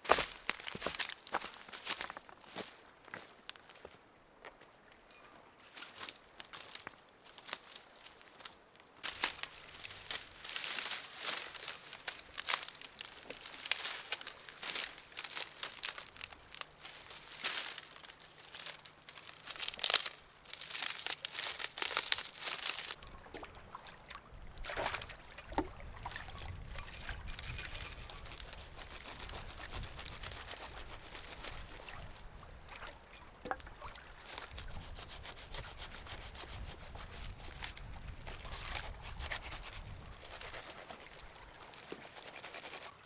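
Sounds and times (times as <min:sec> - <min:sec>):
crinkling and rustling: 0:05.8 - 0:23.0, 0:25.4 - 0:32.3.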